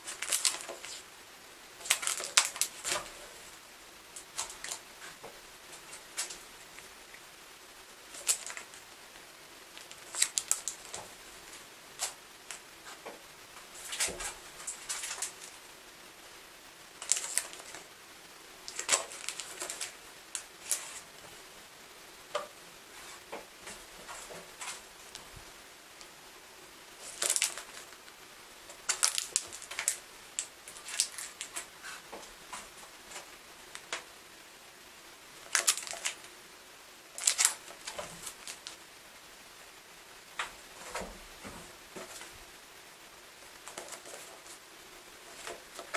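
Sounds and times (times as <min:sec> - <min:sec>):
plastic cover crinkling: 0:00.0 - 0:01.1, 0:01.8 - 0:03.4, 0:04.2 - 0:06.9, 0:08.0 - 0:09.0, 0:09.7 - 0:15.6, 0:17.0 - 0:18.0, 0:18.6 - 0:21.2, 0:27.0 - 0:34.1, 0:35.4 - 0:36.3, 0:37.1 - 0:38.9, 0:43.4 - 0:44.6, 0:45.2 - 0:45.9.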